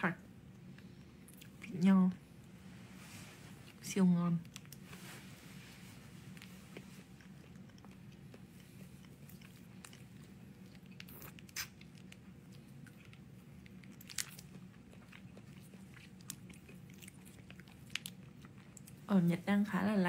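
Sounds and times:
low room hum: 0.0 - 20.0
wet mouth clicks: 11.0 - 11.9.

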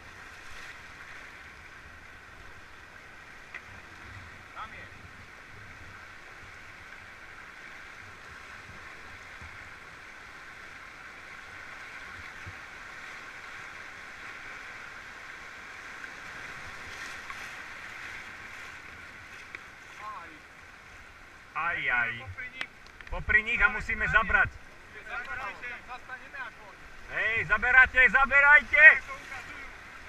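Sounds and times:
water splashing: 15.4 - 30.0
river rapids rushing: 21.2 - 30.0.

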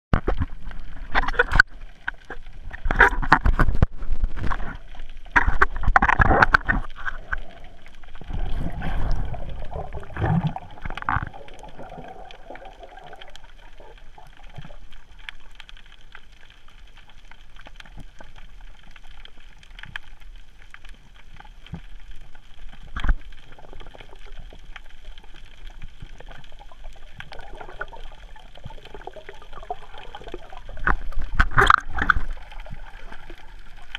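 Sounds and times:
water sloshing and gurgling: 0.2 - 33.9
underwater hiss: 7.2 - 14.7.

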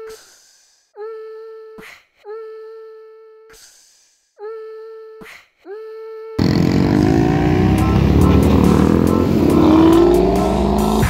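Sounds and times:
car engine accelerating: 6.4 - 11.0.

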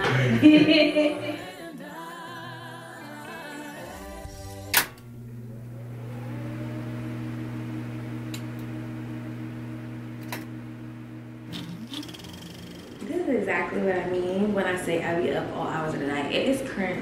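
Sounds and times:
low electric hum: 4.1 - 16.2.

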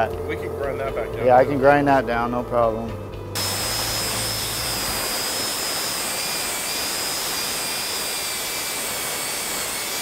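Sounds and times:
angle grinder grinding metal: 3.4 - 10.0.

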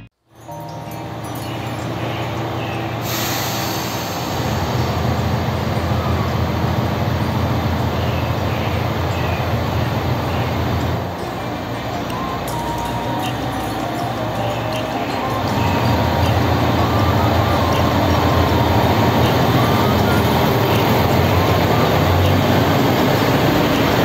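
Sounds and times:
diesel railcar engine drone: 0.0 - 24.0.

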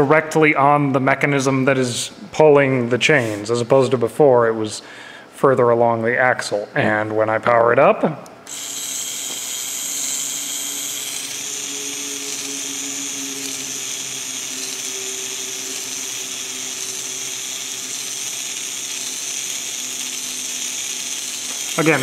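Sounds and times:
small electric motor turning gears: 8.5 - 22.0.

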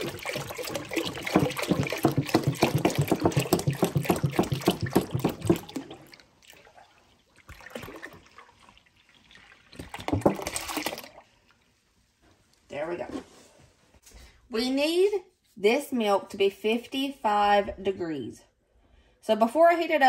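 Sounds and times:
milk glugging from a jug: 0.0 - 11.6.

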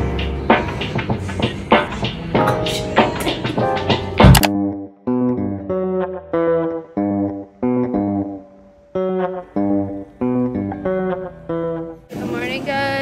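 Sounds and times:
plucked instrumental notes: 2.4 - 12.2.

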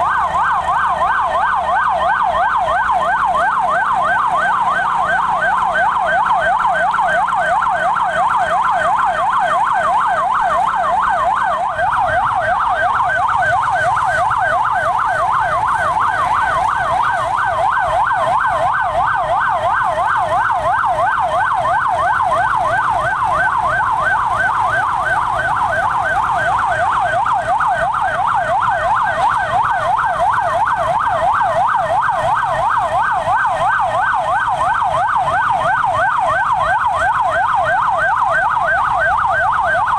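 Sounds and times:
emergency siren yelping: 0.0 - 39.9.

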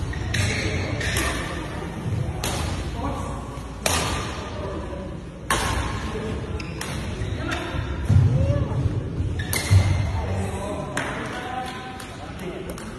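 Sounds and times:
rackets hitting shuttlecock: 0.0 - 1.6, 2.4 - 2.9, 3.8 - 4.4, 5.4 - 7.7, 9.4 - 10.0.

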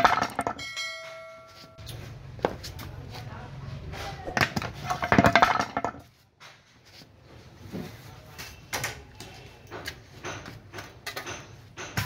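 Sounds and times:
hard objects rattling clatter: 0.0 - 0.8, 4.3 - 6.1.

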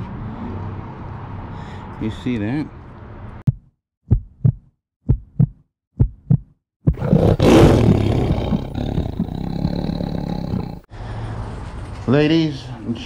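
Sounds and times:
heartbeat thumps: 3.5 - 7.0
sudden loud roar: 7.0 - 10.9.

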